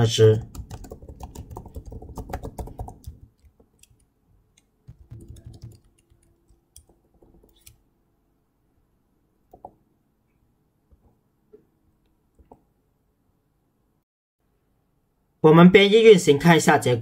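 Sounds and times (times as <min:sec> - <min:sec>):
keyboard keystrokes and clicks: 0:00.4 - 0:07.8.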